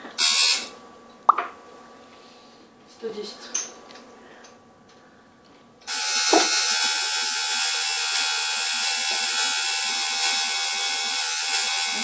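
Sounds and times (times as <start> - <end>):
tattoo machine buzzing: 0.2 - 0.7, 5.9 - 12.0.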